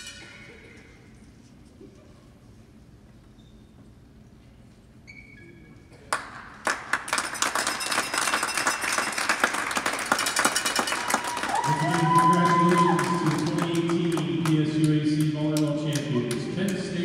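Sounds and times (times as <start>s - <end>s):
crowd applauding: 6.1s - 17.0s.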